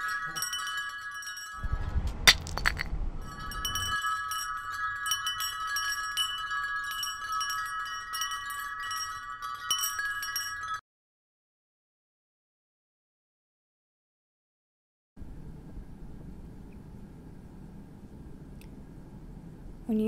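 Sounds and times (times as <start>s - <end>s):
wind chimes tinkling: 0.0s - 10.8s.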